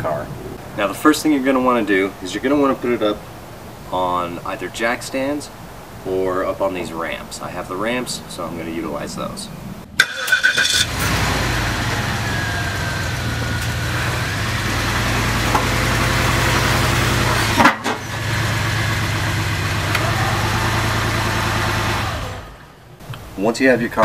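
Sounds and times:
car engine running low hum: 10.8 - 23.0.

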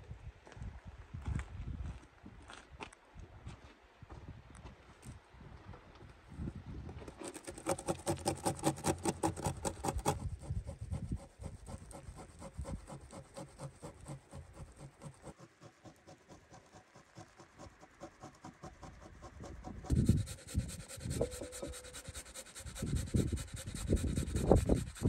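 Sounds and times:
fat grated on metal grater: 7.2 - 25.0.

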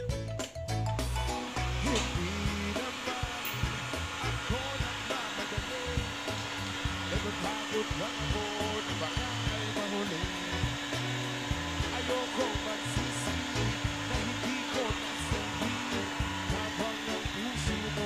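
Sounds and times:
music: 0.0 - 18.0
heat gun blowing hiss: 1.3 - 18.0.

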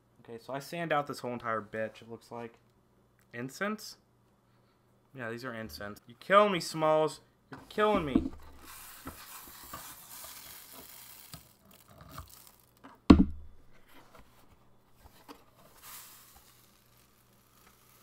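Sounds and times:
sand hissing and trickling: 8.6 - 12.7, 15.7 - 18.0
loud thump: 13.1 - 13.6.

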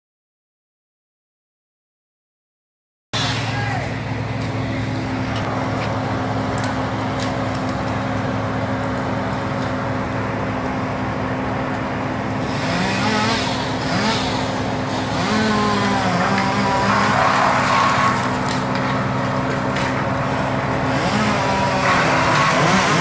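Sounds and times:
machinery engine revving: 3.2 - 23.0.

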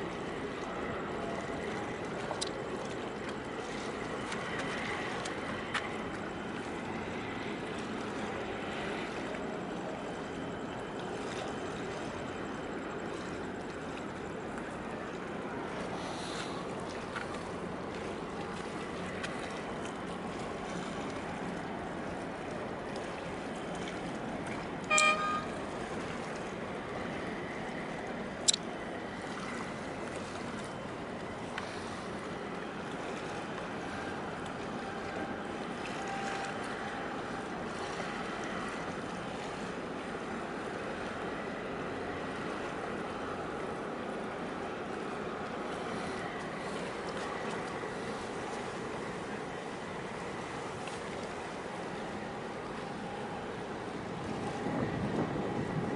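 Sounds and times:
large ship moving: 0.0 - 55.9
rushing harbour water: 0.0 - 55.9
short high horn beep: 24.8 - 25.7.

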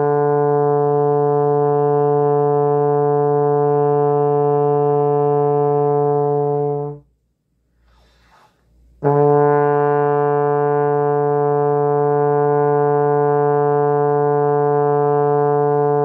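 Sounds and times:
trombone holding a long note: 0.0 - 7.1, 9.0 - 16.0.

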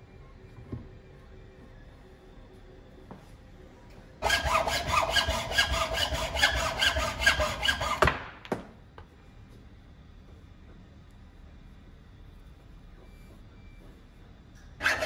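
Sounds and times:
hacksaw cutting wood: 4.2 - 8.1, 14.8 - 15.0.

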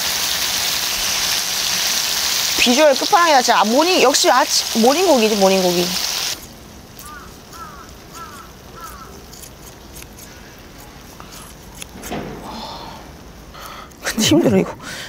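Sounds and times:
pork sizzling on griddle: 0.0 - 10.8
scissors and tongs clicking: 7.0 - 12.0.

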